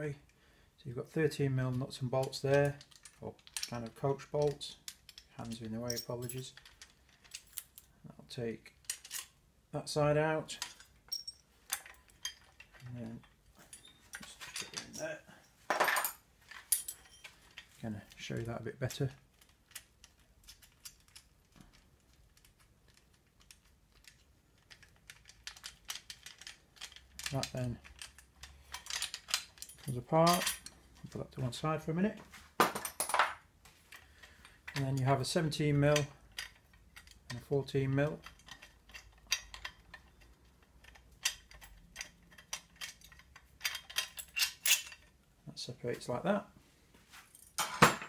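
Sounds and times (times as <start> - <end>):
metallic clicks of spring parts: 2.2 - 7.9, 18.8 - 31.1, 33.9 - 45.2.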